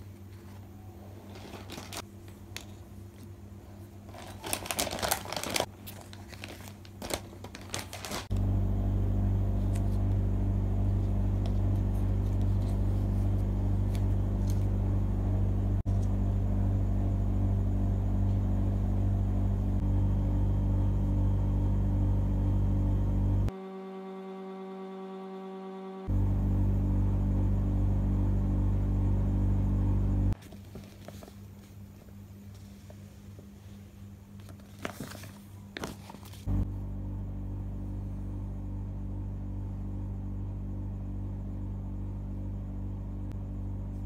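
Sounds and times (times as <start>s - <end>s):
loud low hum: 8.3s - 30.4s, 36.5s - 44.0s.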